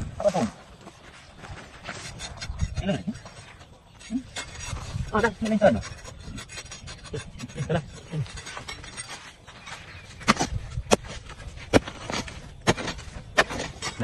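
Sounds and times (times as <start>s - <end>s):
gritty scraping of soil: 0.0s - 14.0s
hoe striking dry earth: 4.2s - 14.0s.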